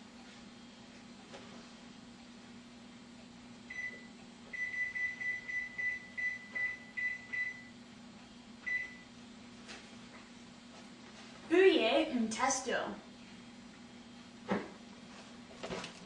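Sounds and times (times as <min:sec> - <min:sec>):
oven control panel beeps: 0:03.7 - 0:07.8, 0:08.6 - 0:09.1.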